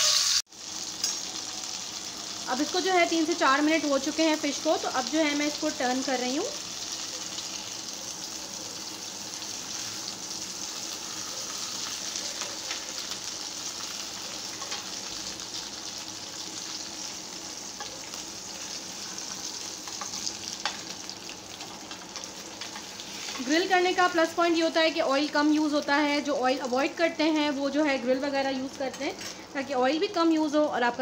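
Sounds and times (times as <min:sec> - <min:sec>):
fish sizzling in oil: 0:00.0 - 0:31.0.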